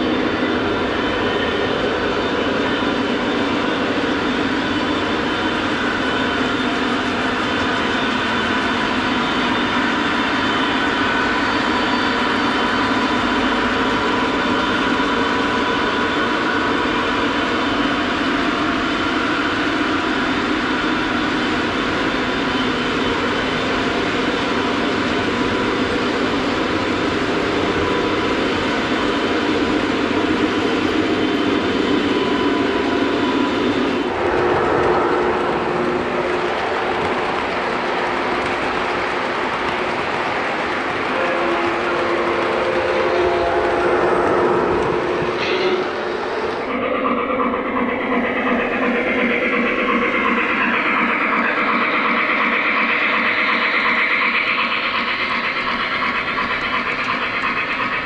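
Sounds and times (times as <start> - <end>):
model train wheels rumbling: 23.2 - 58.0.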